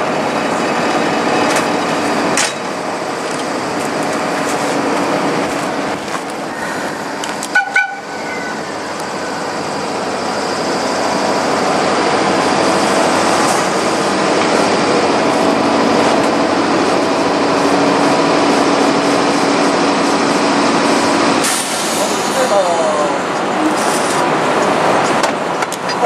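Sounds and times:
electric locomotive humming: 0.0s - 26.0s.

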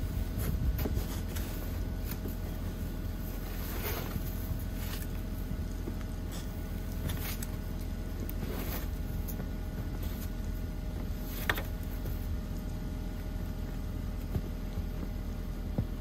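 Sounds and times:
car engine idling: 0.0s - 16.0s
short scrapes: 3.4s - 4.4s, 8.4s - 9.1s.

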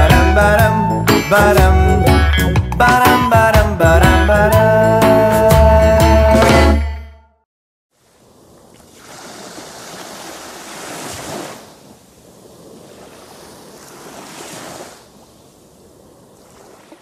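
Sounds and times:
ocean surf washing on beach: 8.0s - 17.0s.

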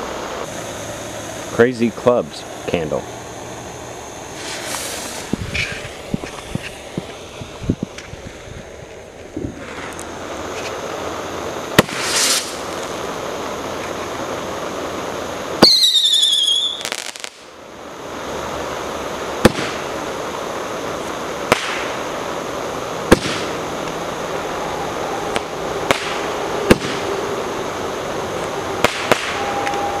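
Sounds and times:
firework hissing: 0.0s - 30.0s
firework pops: 4.4s - 8.2s, 11.7s - 13.0s, 15.6s - 17.5s, 19.4s - 20.0s, 21.4s - 22.1s, 23.0s - 24.0s, 25.3s - 27.1s, 28.4s - 29.9s
firework whistle falling in pitch: 15.6s - 17.3s, 23.1s - 30.0s.

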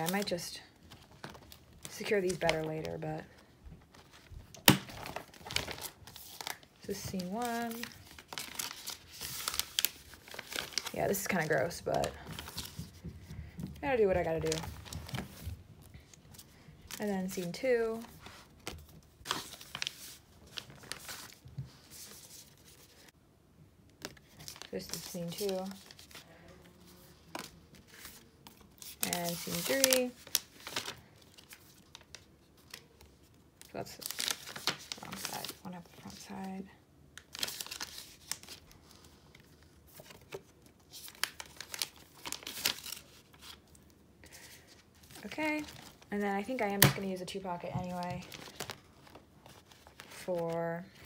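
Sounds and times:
plastic sleeves crinkling: 0.0s - 23.1s, 23.9s - 36.6s, 37.2s - 51.0s.

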